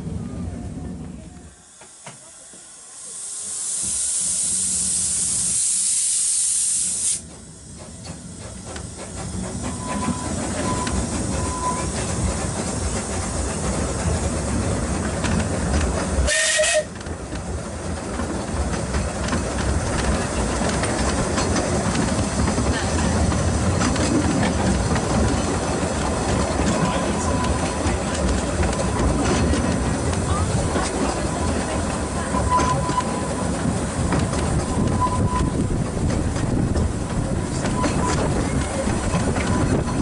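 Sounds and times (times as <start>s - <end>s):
steam hissing: 1.4s - 16.9s
train wheels clattering on track: 1.7s - 2.8s, 6.8s - 40.0s
train whistle toot: 16.2s - 17.0s.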